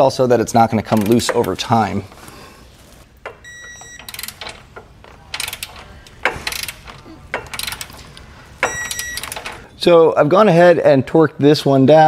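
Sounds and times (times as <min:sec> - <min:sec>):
ratcheting wrench clicking: 0:00.6 - 0:02.2, 0:03.2 - 0:09.7.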